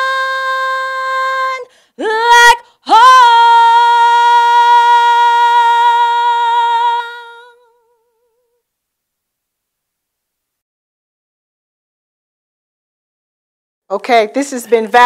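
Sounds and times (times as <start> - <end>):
woman singing unaccompanied: 0.0 - 8.6.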